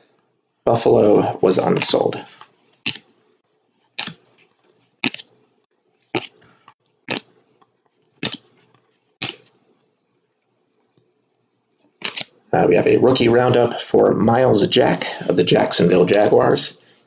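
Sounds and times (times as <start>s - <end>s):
trading cards snapping: 1.8s - 3.1s, 4.0s - 5.3s, 8.2s - 9.5s, 12.0s - 12.3s.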